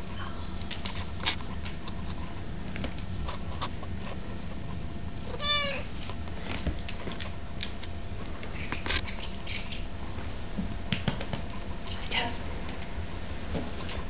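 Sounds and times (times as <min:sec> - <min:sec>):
cat meowing: 0:05.3 - 0:05.9.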